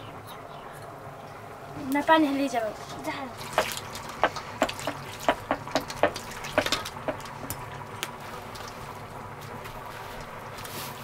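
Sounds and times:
water splashing and dripping: 2.9 - 9.8.

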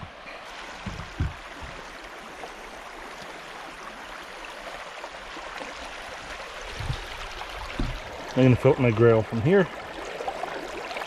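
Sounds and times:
river water rushing: 0.0 - 11.0
low thumps: 0.8 - 1.8.

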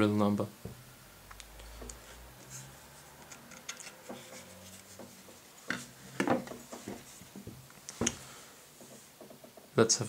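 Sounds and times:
gun parts knocking on table: 5.7 - 7.0.

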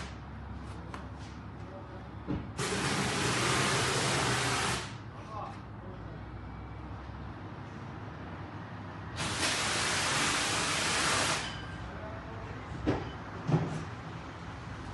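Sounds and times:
gas hissing: 2.6 - 5.0, 9.2 - 11.4.

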